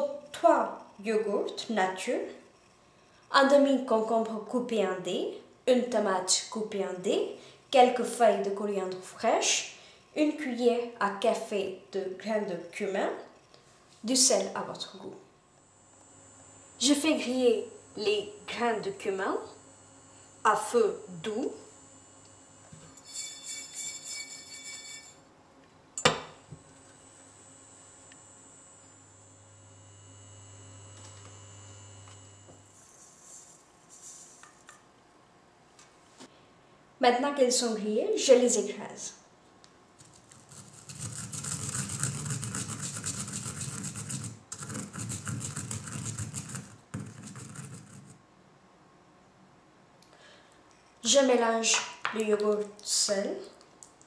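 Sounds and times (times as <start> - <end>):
pestle grinding seeds in mortar: 22.9 - 25.1, 40.0 - 48.2.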